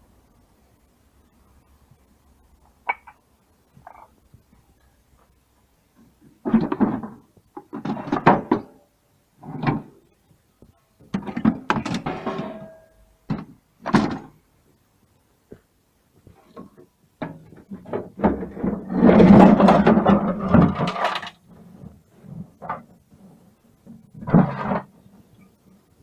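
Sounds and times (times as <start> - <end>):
metal parts clanking and rattling: 11.2 - 12.9, 17.2 - 21.4.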